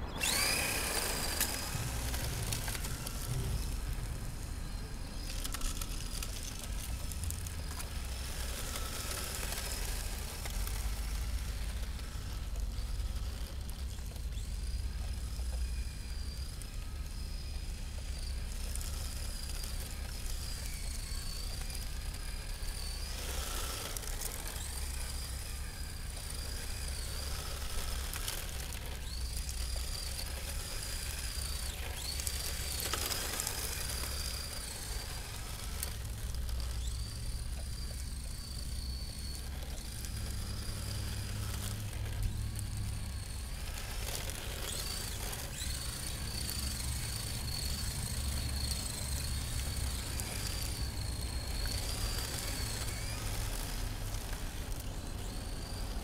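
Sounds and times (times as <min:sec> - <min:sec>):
steady low rumble: 0:00.0 - 0:09.0
electric motor whining: 0:00.0 - 0:56.0.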